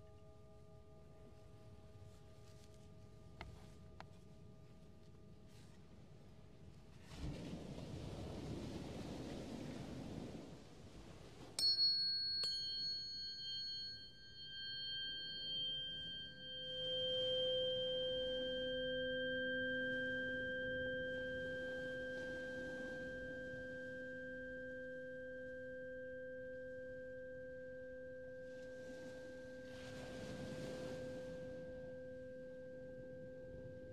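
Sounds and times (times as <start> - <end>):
low pure tone: 0.0 - 10.4, 11.0 - 33.9
wind noise: 7.0 - 11.6, 28.8 - 31.9
tuning forks ringing: 11.6 - 33.9.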